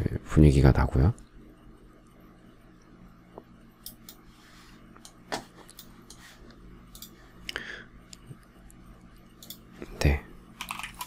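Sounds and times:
low steady hum: 0.0 - 11.0
computer mouse clicks: 6.9 - 7.2, 9.4 - 9.6.

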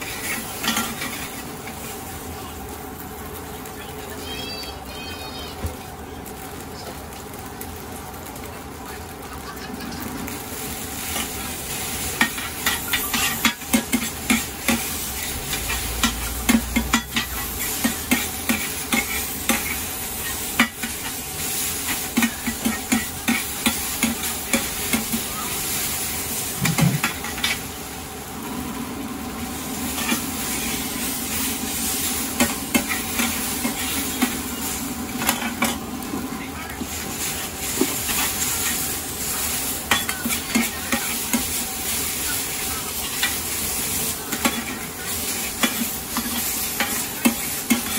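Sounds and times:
metal utensil scraping a wok: 0.0 - 1.8, 11.0 - 25.3
food sizzling: 0.0 - 47.9.

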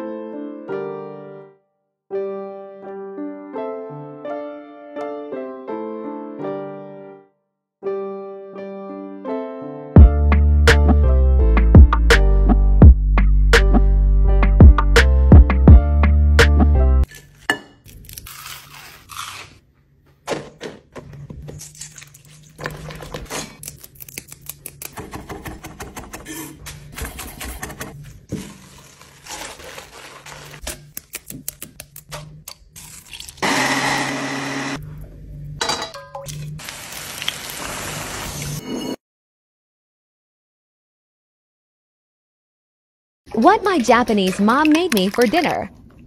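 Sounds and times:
fritters crunching torn apart: 17.2 - 19.6, 21.5 - 24.9, 28.4 - 33.4
batter sizzling in hot oil: 36.6 - 38.6.

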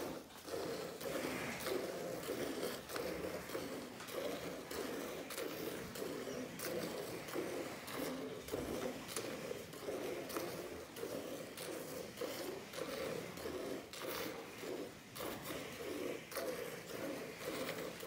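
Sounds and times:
milk squirting into a steel pot: 0.0 - 18.0.

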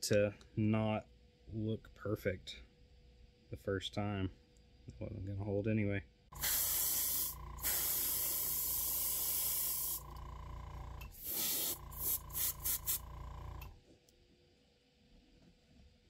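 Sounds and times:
motor hum and whine: 6.3 - 13.9
spray paint hissing: 6.4 - 10.1, 11.2 - 13.1.

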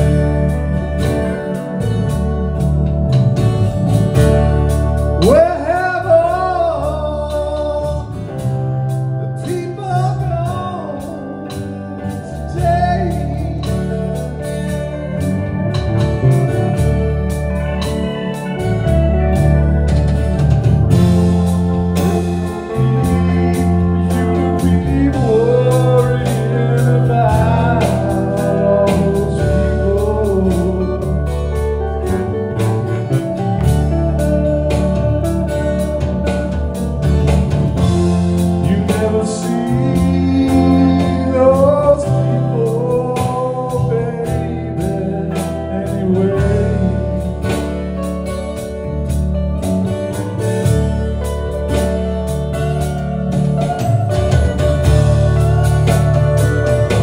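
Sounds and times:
rock band playing slow jam: 0.0 - 57.0
person singing: 5.2 - 19.5, 21.2 - 36.8, 37.7 - 48.2.

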